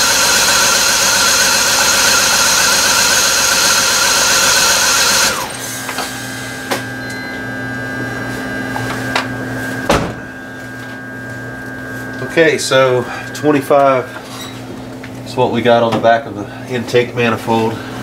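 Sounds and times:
wavering high whine: 5.3 - 15.6
low steady hum: 6.0 - 18.0.

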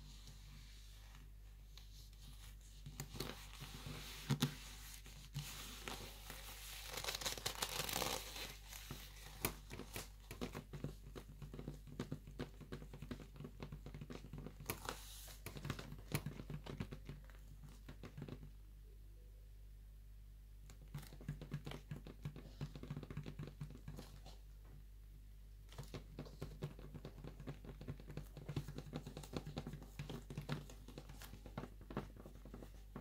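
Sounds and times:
leather gloves crackling: 5.8 - 10.2.

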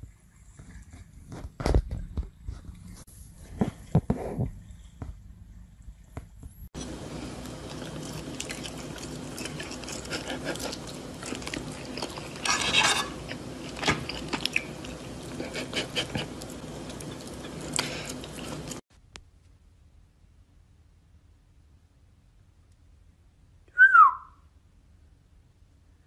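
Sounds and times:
chewing food: 6.8 - 18.8
fork and knife scraping plate: 9.4 - 14.5.

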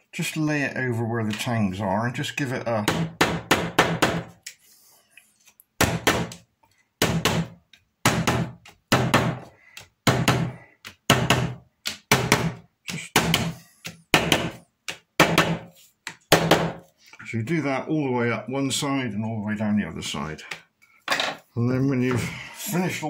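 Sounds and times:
hammer knocking on wood block: 2.8 - 4.3, 7.0 - 16.8.

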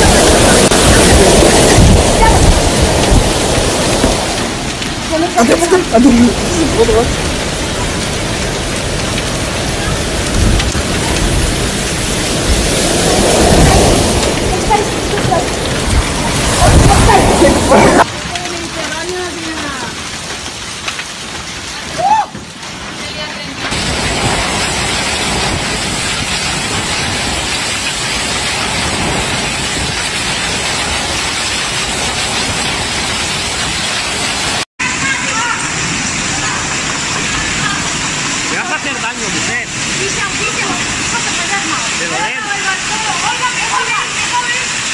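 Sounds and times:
strong wind gusts rumbling: 0.0 - 18.1, 23.7 - 39.0
heavy rain hissing: 0.0 - 44.9.

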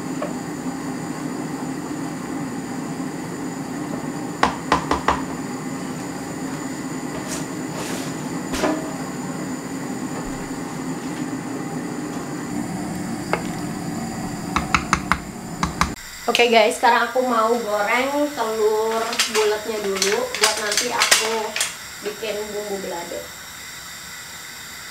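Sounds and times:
kitchen equipment humming: 0.0 - 24.9
knocks: 4.4 - 5.3, 14.5 - 16.0.

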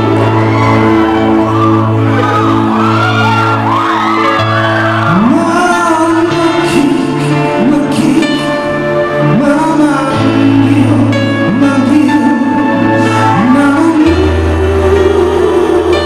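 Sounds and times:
backing band playing: 0.0 - 16.0
man singing into microphone: 5.0 - 16.0.

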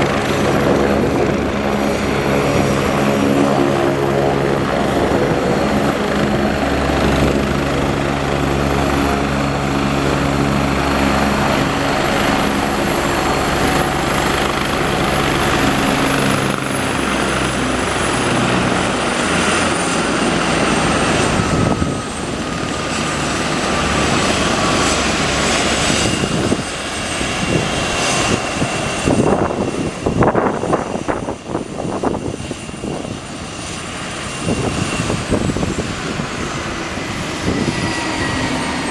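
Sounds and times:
gusty rushing of rotor: 0.0 - 38.9
helicopter engine and rotor drone: 0.0 - 38.9
turbine whine winding down: 34.2 - 38.9.

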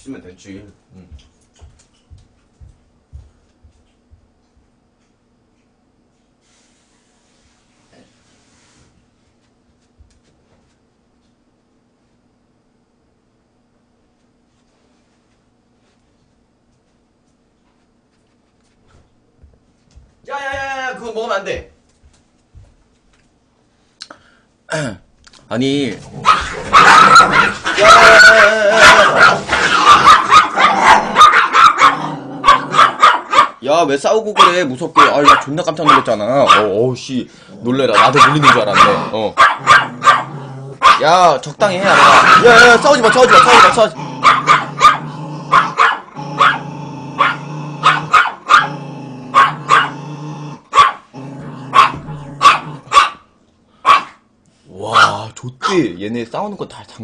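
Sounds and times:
dogs fighting and barking: 26.0 - 33.6, 34.3 - 55.8.

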